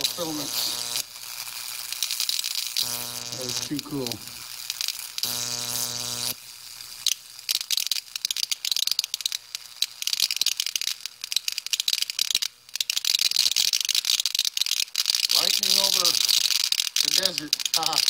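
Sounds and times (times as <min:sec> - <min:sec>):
electric buzz: 0:00.0 - 0:07.6, 0:15.3 - 0:18.0
electric sparks crackling: 0:00.0 - 0:18.0.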